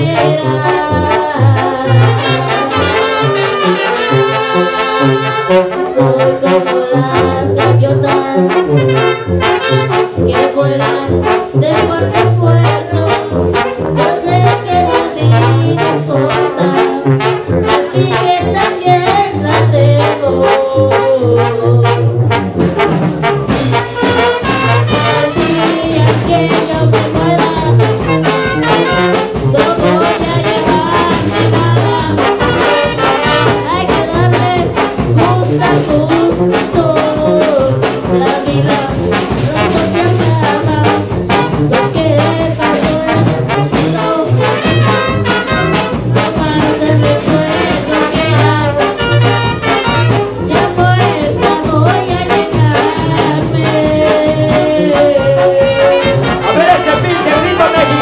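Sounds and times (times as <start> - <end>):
trombones and trumpets: 0.0 - 58.0
sousaphone bass line: 5.8 - 58.0
drums keeping a beat: 22.3 - 58.0.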